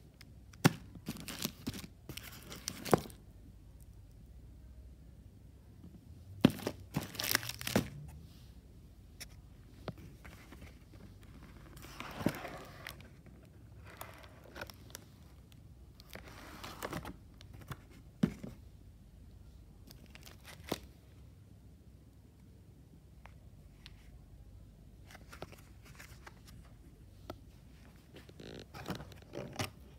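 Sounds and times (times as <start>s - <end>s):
packaging rustling: 6.5s - 7.9s
wrappers crinkling and tearing: 6.9s - 7.8s.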